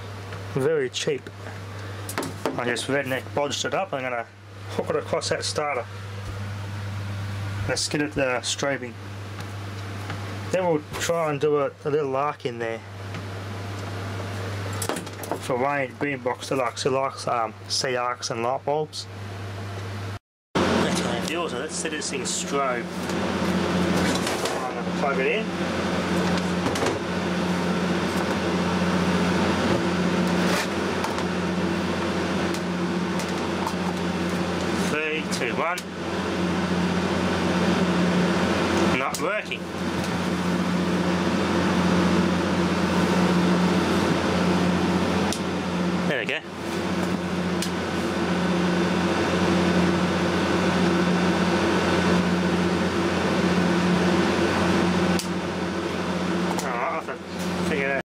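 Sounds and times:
low electrical hum: 0.0s - 58.0s.

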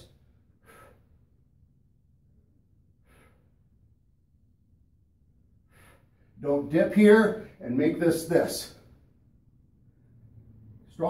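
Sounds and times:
man breathing with effort: 0.0s - 1.6s, 2.9s - 4.0s, 5.5s - 6.4s.

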